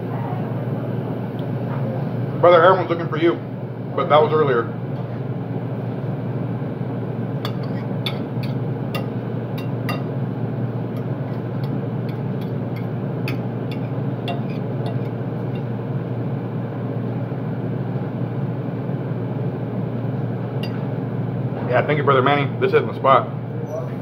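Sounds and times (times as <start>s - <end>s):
low machine hum: 0.0s - 24.0s
fork scraping on ceramic plate: 7.5s - 10.1s, 11.0s - 15.7s.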